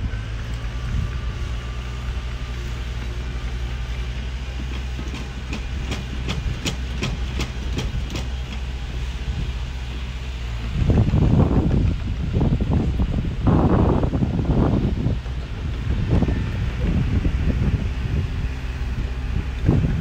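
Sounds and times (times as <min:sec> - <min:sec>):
bulldozer diesel engine running: 0:00.0 - 0:20.0
metal track clanks: 0:02.9 - 0:13.0.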